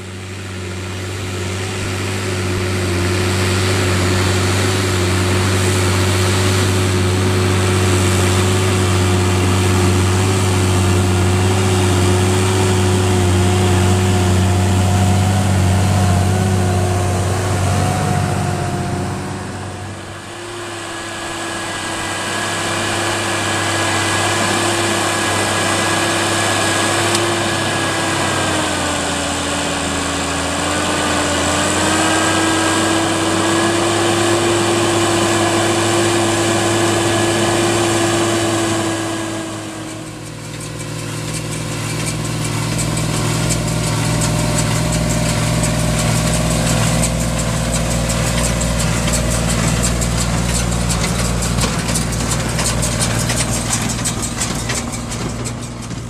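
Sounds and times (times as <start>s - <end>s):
steady engine drone: 0.0s - 56.0s
tractor diesel engine under load: 0.0s - 56.0s
baler mechanical rattle: 36.2s - 56.0s.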